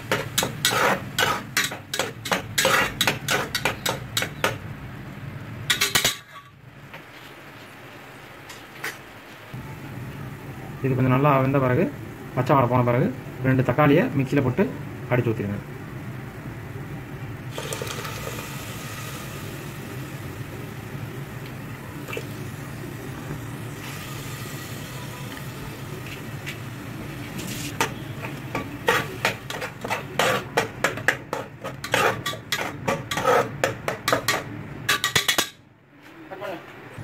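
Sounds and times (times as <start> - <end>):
spatula scraping pan: 0.0 - 4.3, 27.3 - 34.4
tomato sizzling in hot oil: 17.5 - 30.4.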